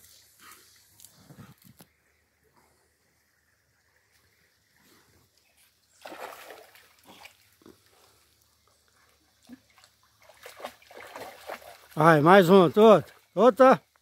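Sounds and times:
dog splashing in creek: 0:04.0 - 0:13.6.

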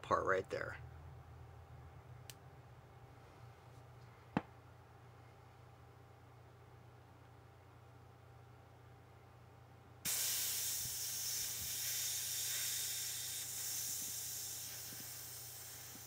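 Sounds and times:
gas hissing from valve: 0:10.1 - 0:16.0.

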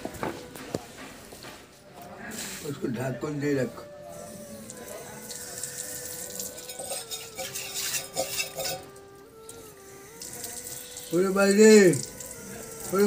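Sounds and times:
faint steady tones: 0:02.0 - 0:13.0
metal pots and lid clinking: 0:06.4 - 0:09.1.

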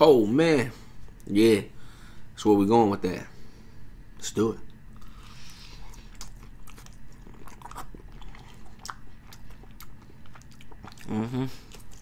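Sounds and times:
man chewing crunchy food: 0:04.9 - 0:12.0.

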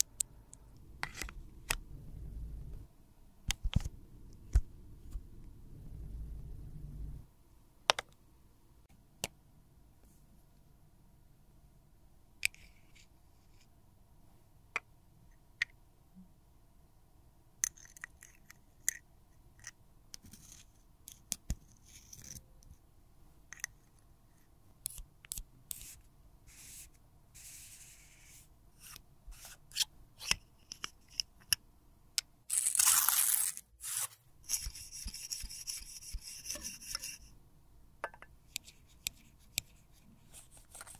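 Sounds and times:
spatula scraping metal tube: 0:33.8 - 0:37.3.

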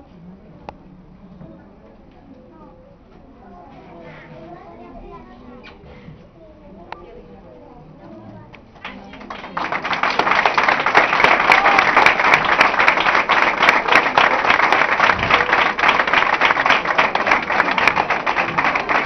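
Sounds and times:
audience applauding: 0:08.8 - 0:19.0.

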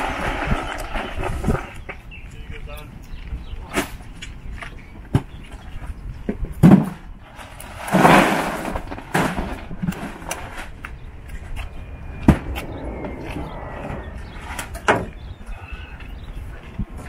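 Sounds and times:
steady low rumble: 0:10.4 - 0:17.0.

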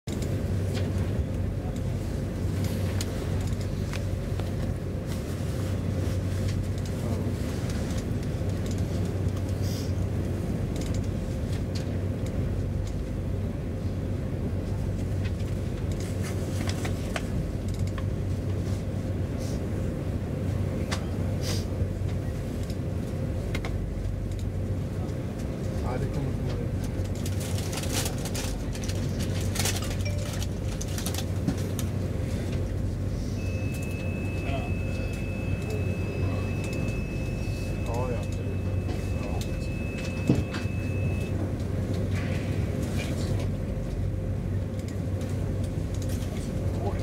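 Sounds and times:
train ventilation hum: 0:00.1 - 0:47.0
faint high tone: 0:33.4 - 0:41.3.

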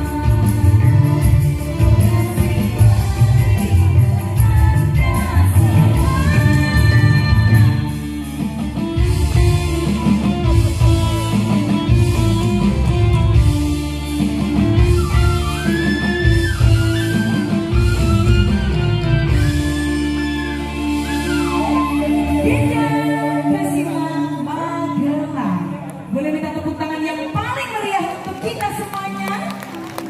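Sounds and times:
electric guitar: 0:00.0 - 0:26.4
bamboo flute melody: 0:14.6 - 0:24.3.

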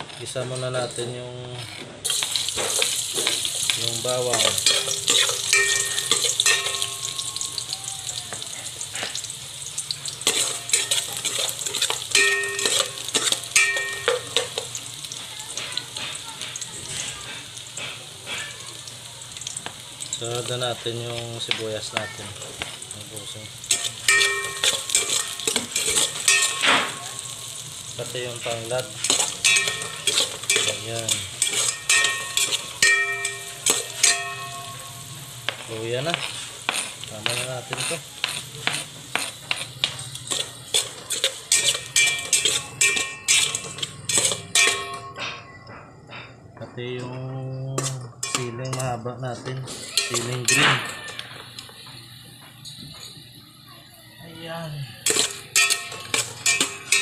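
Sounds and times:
garlic sizzling in oil: 0:00.1 - 0:45.1, 0:47.8 - 0:57.0
metal spoon knocking on pot: 0:02.6 - 0:07.8, 0:12.0 - 0:14.7, 0:23.7 - 0:27.3, 0:29.1 - 0:35.6, 0:41.5 - 0:45.5.

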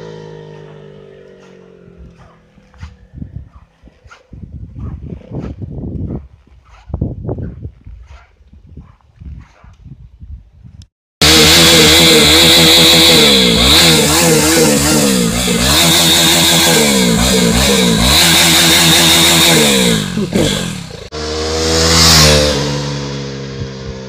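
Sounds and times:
motorcycle passing by: 0:00.0 - 0:03.6, 0:11.2 - 0:24.0
motorcycle engine revving: 0:00.0 - 0:04.0, 0:11.2 - 0:24.0.

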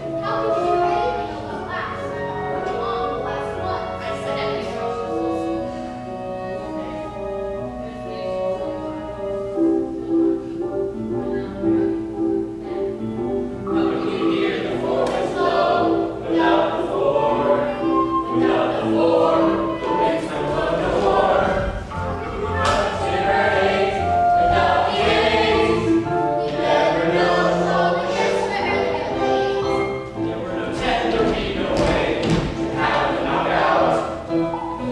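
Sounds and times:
instrumental accompaniment: 0:00.0 - 0:34.9
chorus singing: 0:13.6 - 0:34.9.

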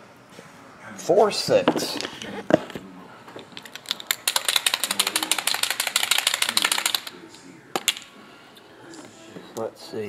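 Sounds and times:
rapid ratchet clicks: 0:03.7 - 0:07.1.

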